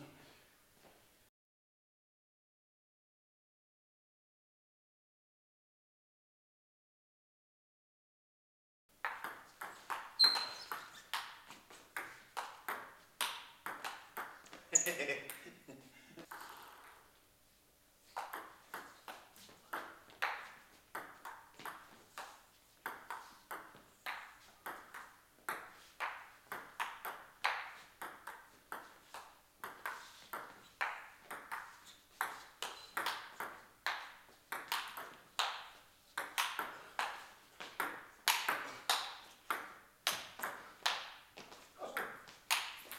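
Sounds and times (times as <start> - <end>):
ping pong ball clicking off table: 9.0 - 14.6, 18.2 - 41.2, 42.0 - 42.9
ping pong ball hitting bats: 9.0 - 15.6, 16.2 - 17.1, 18.2 - 42.9.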